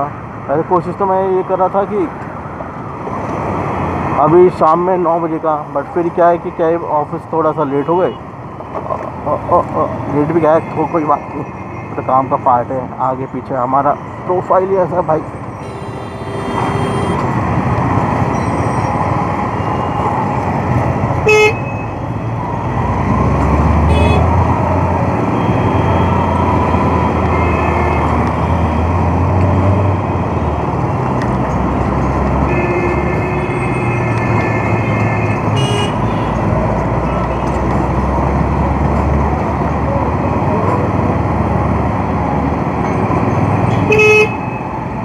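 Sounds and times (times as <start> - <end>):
vehicle horns honking: 15.6 - 17.3, 23.9 - 24.3, 32.5 - 36.4, 43.8 - 44.4.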